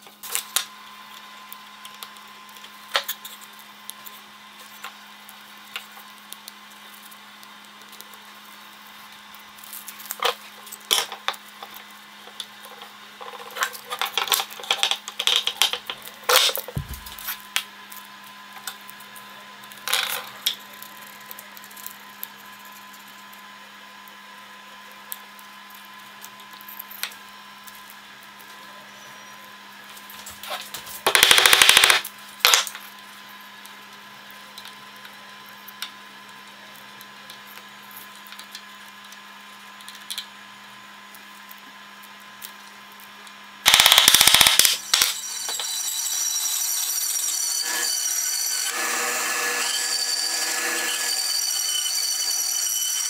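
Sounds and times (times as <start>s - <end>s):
steady hum: 0.0s - 19.6s
tools knocking on workbench: 16.7s - 17.2s.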